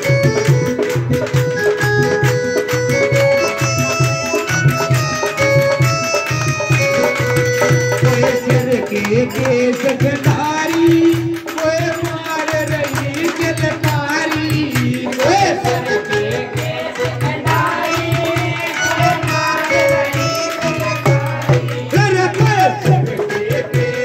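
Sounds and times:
melody instrument held notes: 0.0s - 8.7s
hand drum rhythm: 0.0s - 24.0s
person singing: 6.6s - 24.0s.

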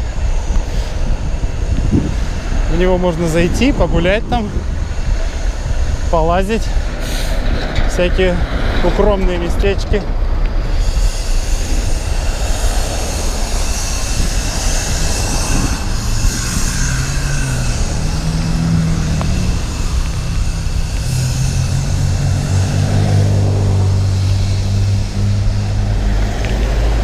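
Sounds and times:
traffic on wet street: 0.0s - 27.0s
deep engine hum: 10.0s - 27.0s.

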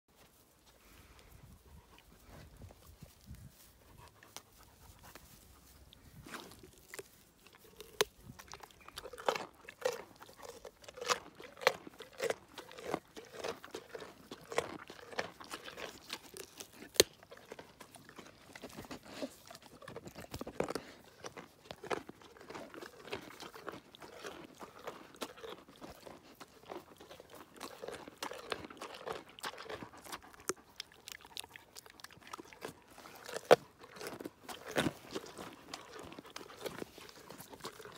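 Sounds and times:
pony crunching carrots: 1.0s - 37.9s.

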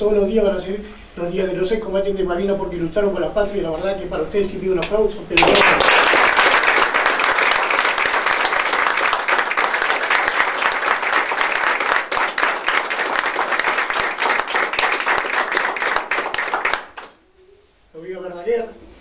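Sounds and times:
crowd applauding: 5.4s - 17.2s.

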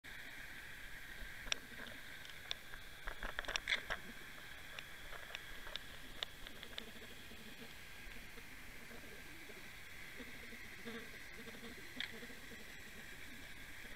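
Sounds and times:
sharp underwater clicks: 1.4s - 7.0s, 12.0s - 12.2s
underwater hiss: 3.7s - 13.9s.

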